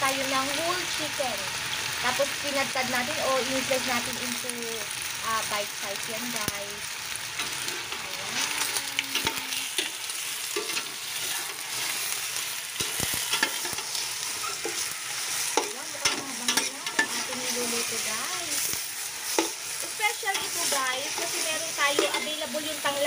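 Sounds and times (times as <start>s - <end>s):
chicken sizzling in hot oil: 0.0s - 23.0s
metal spoon scraping a pot: 7.4s - 12.0s, 12.8s - 18.1s.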